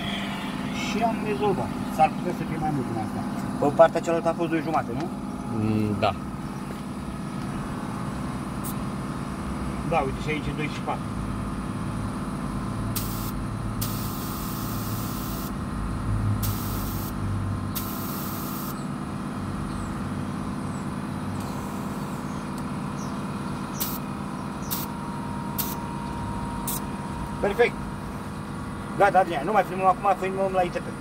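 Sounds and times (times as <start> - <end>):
steady low hum: 0.0 - 31.0
compressed air hissing into tyre: 12.9 - 15.6, 16.4 - 17.2, 17.8 - 18.8, 21.4 - 22.3, 23.7 - 24.0, 24.6 - 24.9, 25.6 - 25.8, 26.6 - 26.9.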